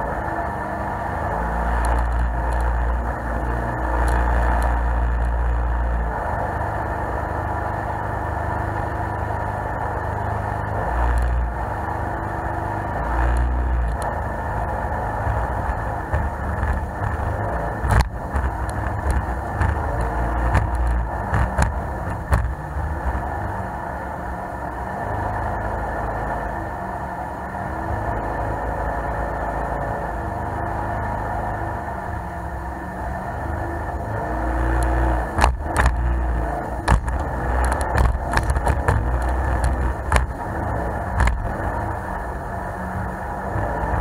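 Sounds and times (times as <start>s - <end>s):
boat engine running: 0.0s - 44.0s
hull knocking on rough water: 15.2s - 22.6s, 36.8s - 40.4s, 41.2s - 41.5s.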